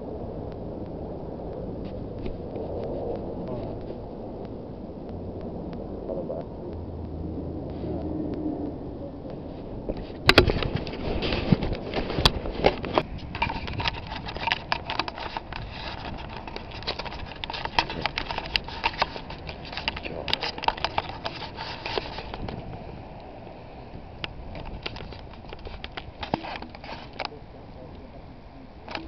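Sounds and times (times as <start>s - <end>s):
low wind rumble: 0.0s - 29.0s
camera handling clicks: 10.2s - 22.6s, 24.2s - 27.3s.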